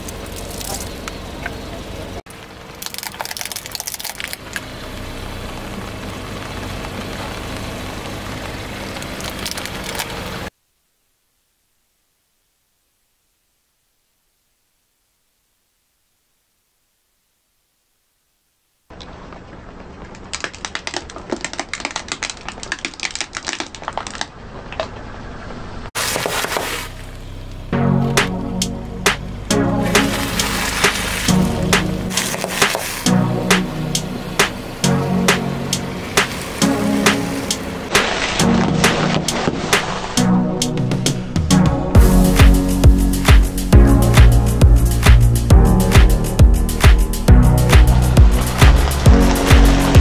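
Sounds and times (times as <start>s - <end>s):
car engine humming: 0.0s - 10.5s, 26.0s - 50.0s
toy cars cracking under tyre: 2.7s - 4.6s, 9.0s - 10.3s, 20.0s - 25.0s, 37.9s - 40.2s.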